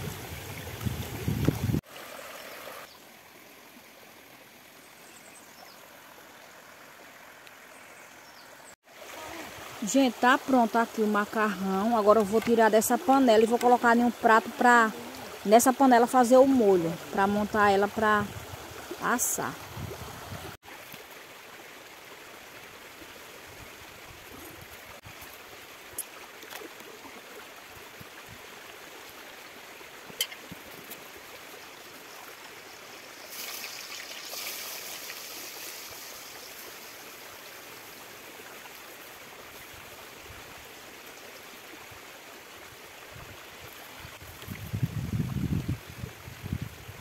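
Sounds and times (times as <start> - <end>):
river water rushing: 5.8 - 36.0.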